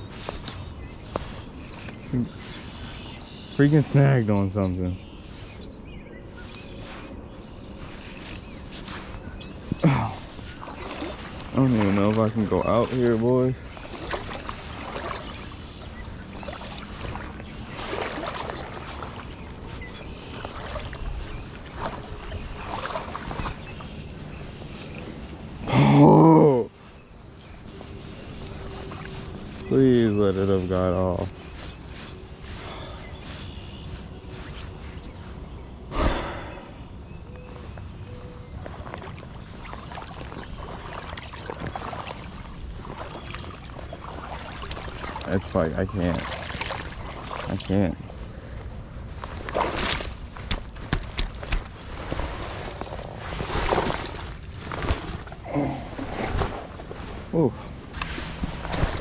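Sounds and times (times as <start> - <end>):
fishing gear rustling: 0.0 - 3.0, 5.1 - 25.6, 27.1 - 35.4, 46.2 - 59.0
footsteps crunching dry grass: 0.0 - 3.5, 6.4 - 25.3, 30.7 - 35.4
clothing rustling: 49.2 - 59.0.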